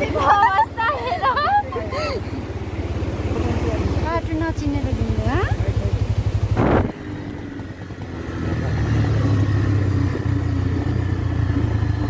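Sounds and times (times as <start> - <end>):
vehicle engine running: 0.0 - 12.0
short rush of noise: 6.6 - 7.0.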